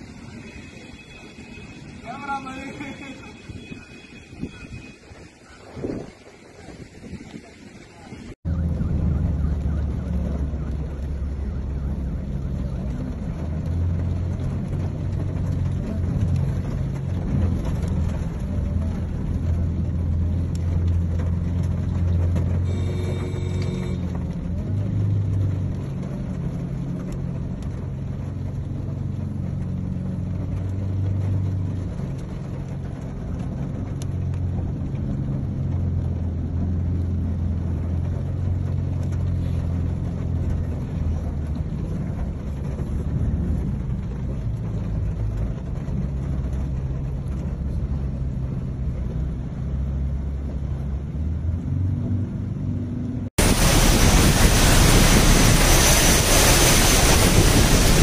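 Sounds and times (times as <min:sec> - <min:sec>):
car engine and cabin drone: 0:08.3 - 0:58.0
water washing along car: 0:09.1 - 0:49.5, 0:53.4 - 0:58.0
loud rushing hiss: 0:53.4 - 0:58.0.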